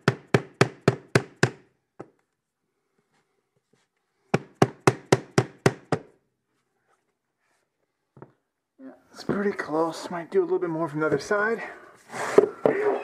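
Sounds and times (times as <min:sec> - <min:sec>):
hammer blows on floor planks: 0:04.3 - 0:06.2.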